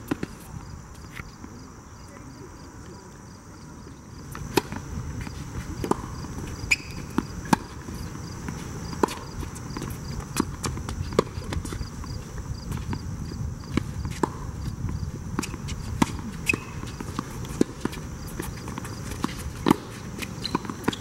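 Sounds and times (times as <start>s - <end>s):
tennis ball bouncing: 4.3s - 13.0s, 13.7s - 21.0s
rackets striking tennis ball: 5.7s - 11.9s, 15.4s - 21.0s.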